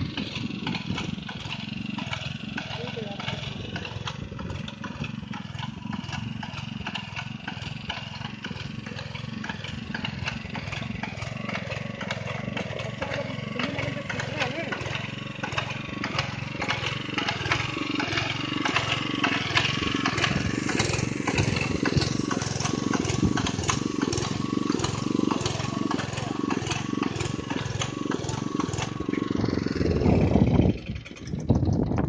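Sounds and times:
small engine and paint pump pulsing: 0:00.0 - 0:32.0.

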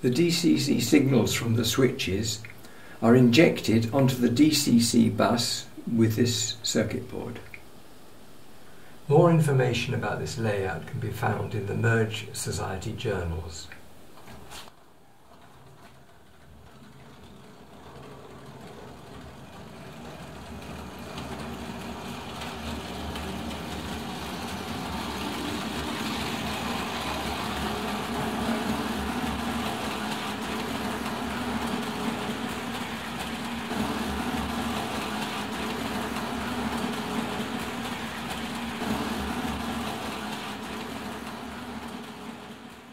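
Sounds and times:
model train wheel clatter: 0:14.2 - 0:42.9
model train motor hum: 0:15.4 - 0:42.8.

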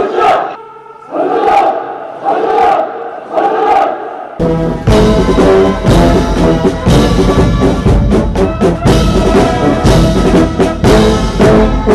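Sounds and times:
drums: 0:04.4 - 0:11.9
loud orchestral brass music: 0:04.4 - 0:11.9.

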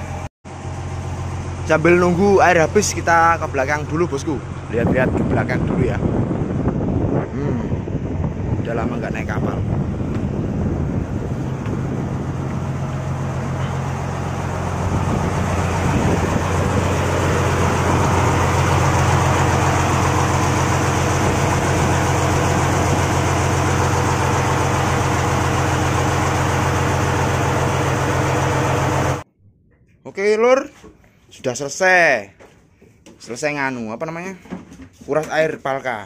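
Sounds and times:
diesel engine idling: 0:00.0 - 0:06.6, 0:09.5 - 0:29.2.

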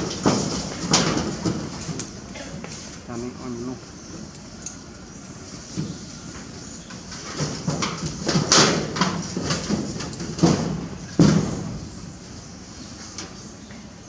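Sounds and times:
irregular knocks and thumps: 0:05.7 - 0:11.9.

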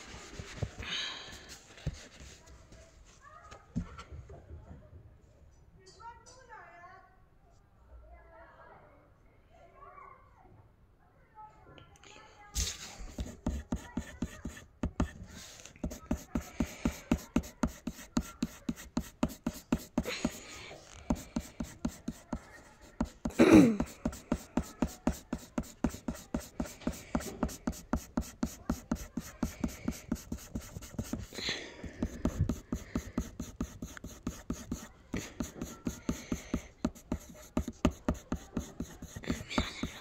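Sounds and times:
pencil scratching on paper: 0:12.6 - 0:40.0.

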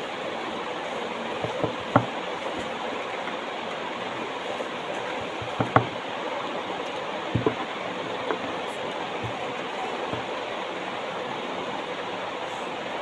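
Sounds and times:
steady rushing hiss: 0:00.0 - 0:13.0
soft knocks on phone: 0:01.4 - 0:02.1, 0:07.4 - 0:07.6.

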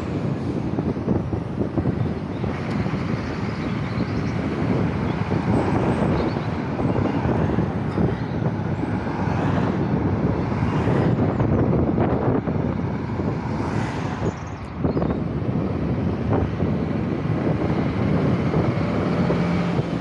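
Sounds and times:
wind noise on microphone: 0:00.0 - 0:20.0
car passing by: 0:08.9 - 0:11.3, 0:13.0 - 0:14.7.

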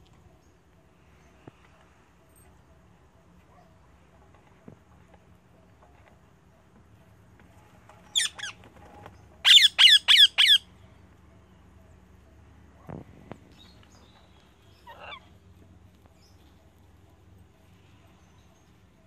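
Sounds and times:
parrot squawking: 0:09.4 - 0:10.7, 0:14.8 - 0:15.3.

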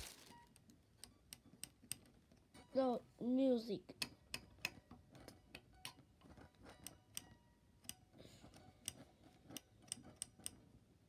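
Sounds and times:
guitar tuning pegs clicking: 0:04.0 - 0:10.7.

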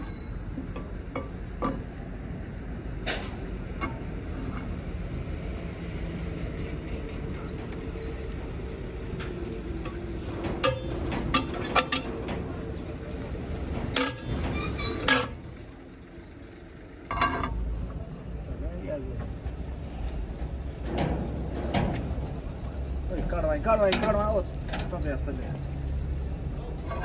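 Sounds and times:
low steady rumble: 0:00.0 - 0:27.0
metal spanner clanking: 0:09.0 - 0:18.1, 0:20.3 - 0:27.0.

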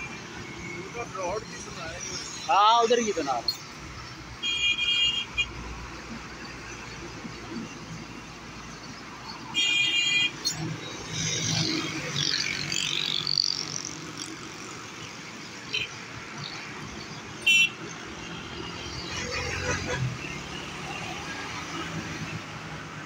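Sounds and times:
vehicles passing: 0:00.0 - 0:23.0
vehicle horn: 0:04.4 - 0:05.5, 0:09.6 - 0:10.4, 0:17.4 - 0:17.8.

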